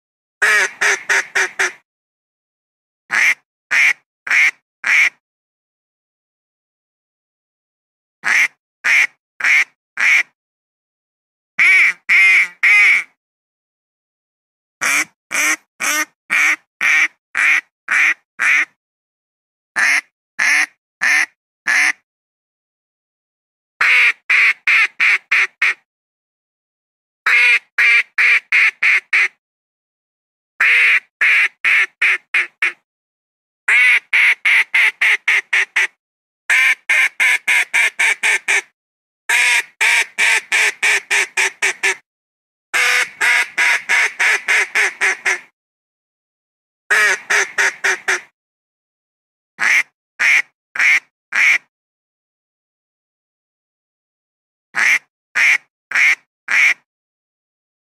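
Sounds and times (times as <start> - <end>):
duck quacking: 0.4 - 1.8, 3.1 - 5.2, 8.2 - 10.3, 11.6 - 13.1, 14.8 - 18.7, 19.8 - 22.0, 23.8 - 25.8, 27.3 - 29.3, 30.6 - 32.8, 33.7 - 38.7, 39.3 - 42.0, 42.8 - 45.5, 46.9 - 48.3, 49.6 - 51.6, 54.8 - 56.8.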